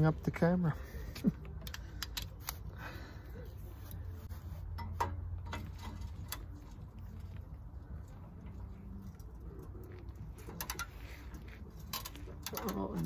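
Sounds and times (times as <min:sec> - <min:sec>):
low steady hum: 0:00.0 - 0:13.0
ratchet and socket metal clicks: 0:01.6 - 0:02.7, 0:10.4 - 0:13.0.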